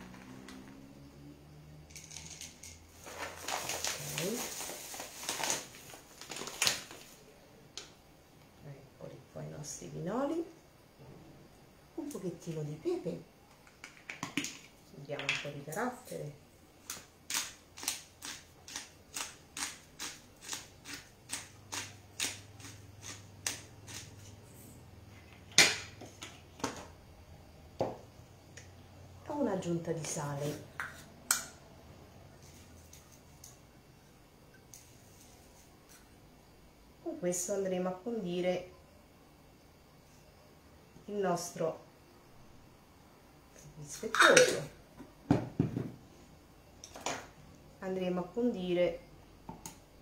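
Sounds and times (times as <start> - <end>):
pepper mill grinding and clicking: 1.9 - 2.8, 16.9 - 24.4
plastic bag crinkling: 2.1 - 7.2.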